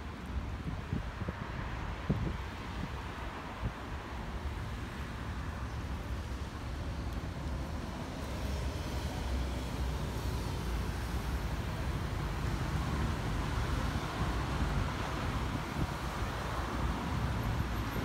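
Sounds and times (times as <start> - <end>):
traffic rumble: 0.0 - 18.0
wind buffeting microphone: 0.4 - 4.2, 12.0 - 18.0.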